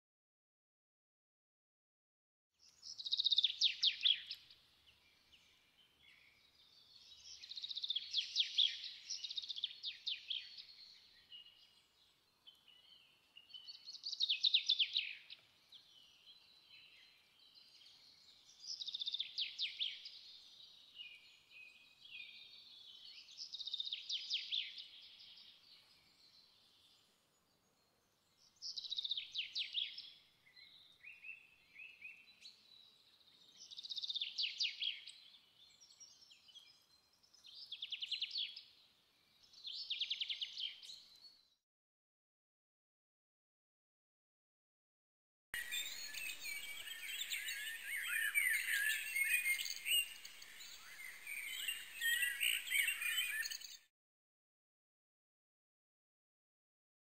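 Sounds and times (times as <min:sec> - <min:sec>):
bird singing trilled phrases: 0:45.6 - 0:53.9.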